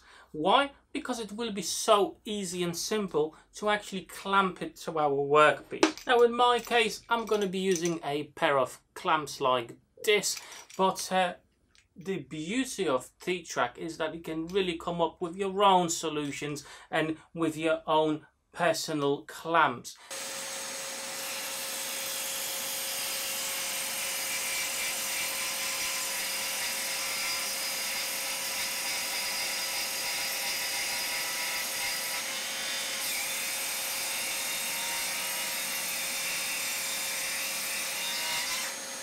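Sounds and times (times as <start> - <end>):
circular saw cutting board: 20.1 - 39.0.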